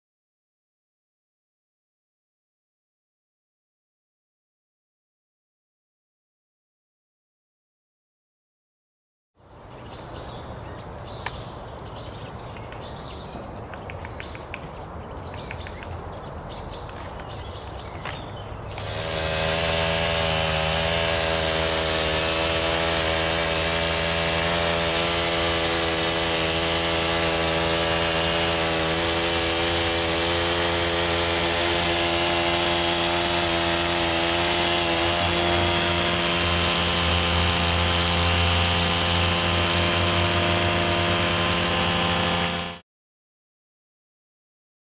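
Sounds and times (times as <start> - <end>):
birds chirping: 9.4 - 19.3, 39.4 - 40.2
hedge trimmer engine running: 18.0 - 42.8.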